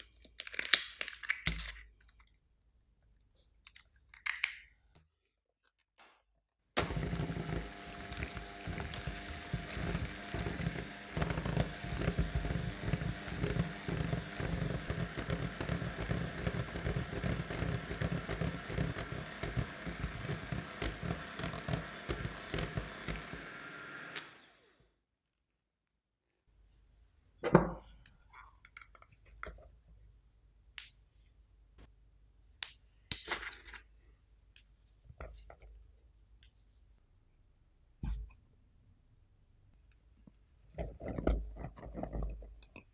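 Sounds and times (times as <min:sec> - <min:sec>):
electric hand mixer whisking: 0:06.8 - 0:24.8.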